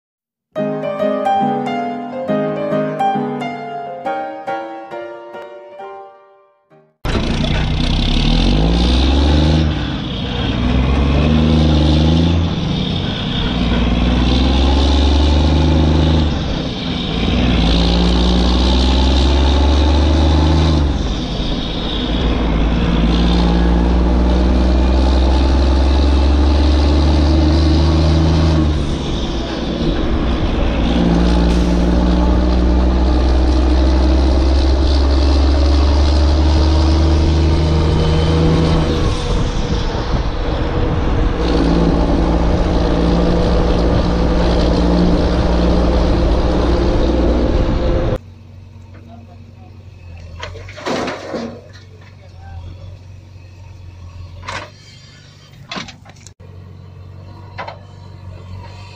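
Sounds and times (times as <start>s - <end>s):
vehicle engine revving: 7.0s - 48.4s.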